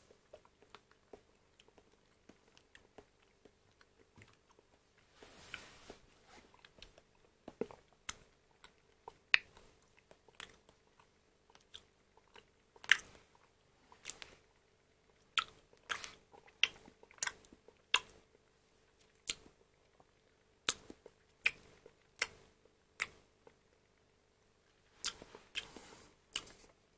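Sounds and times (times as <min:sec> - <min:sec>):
wet mouth smacks while eating: 0:26.3 - 0:26.7.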